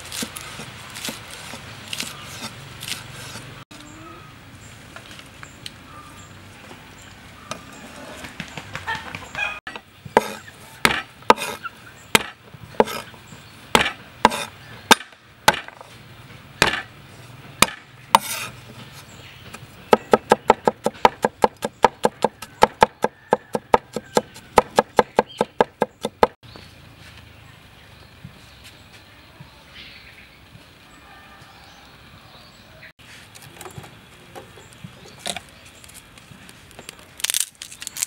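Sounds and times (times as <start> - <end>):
cleaver chopping on wooden board: 9.7 - 13.1, 13.7 - 15.9, 16.6 - 16.9, 17.6 - 18.5, 19.9 - 26.4.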